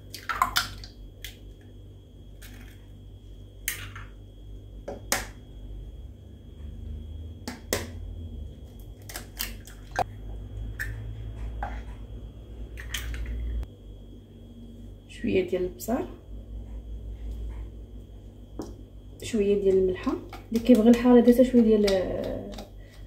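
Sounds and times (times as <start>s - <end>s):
eggs cracking on plastic jug: 0.1s - 1.4s, 19.7s - 23.0s.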